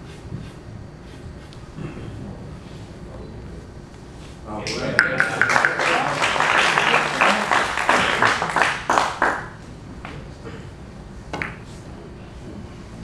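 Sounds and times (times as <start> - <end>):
audience applauding: 4.7 - 9.6.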